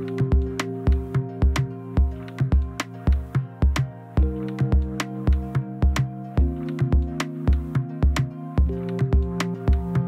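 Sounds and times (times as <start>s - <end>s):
electronic drum beat music: 0.0s - 10.0s.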